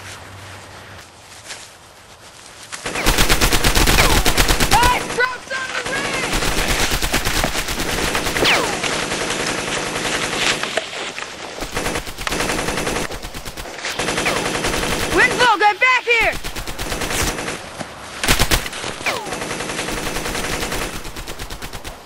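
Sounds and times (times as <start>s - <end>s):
machine-gun fire in rapid bursts: 2.8s - 10.6s, 11.6s - 15.6s, 16.2s - 22.0s.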